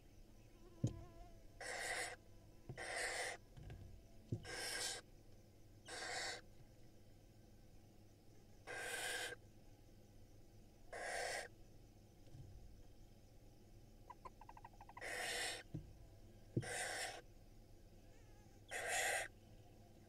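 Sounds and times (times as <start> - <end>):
owl nestlings hissing rasps: 1.6 - 2.2, 2.8 - 3.4, 4.4 - 5.0, 5.9 - 6.4, 8.7 - 9.4, 10.9 - 11.5, 14.2 - 15.7, 16.6 - 17.2, 18.7 - 19.3.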